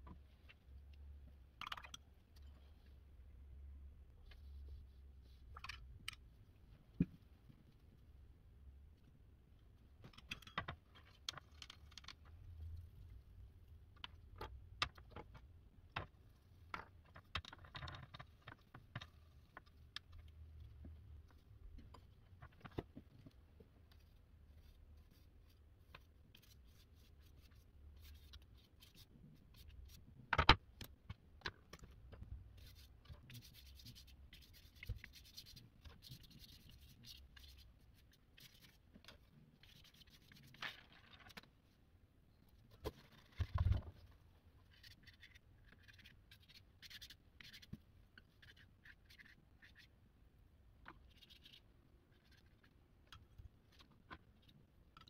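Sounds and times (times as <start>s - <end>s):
paintbrush scratching on paper: 23.9s - 30.0s, 32.6s - 38.8s.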